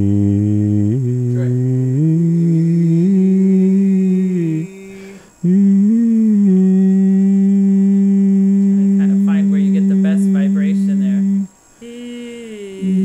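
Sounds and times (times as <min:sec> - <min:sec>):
man singing held vowel: 0:00.0 - 0:13.0
person breathing: 0:04.7 - 0:05.7.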